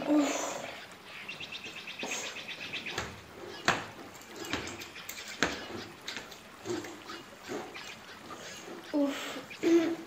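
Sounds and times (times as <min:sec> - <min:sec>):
sharp knocks: 0:02.9 - 0:06.9.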